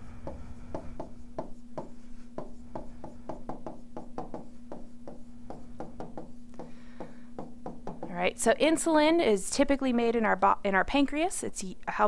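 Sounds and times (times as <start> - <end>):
faint steady hum: 0.0 - 12.0
stylus tapping and scratching on screen: 0.2 - 8.2.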